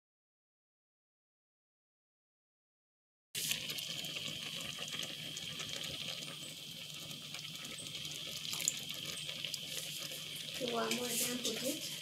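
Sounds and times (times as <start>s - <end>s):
porridge bubbling in a pot: 3.4s - 12.0s.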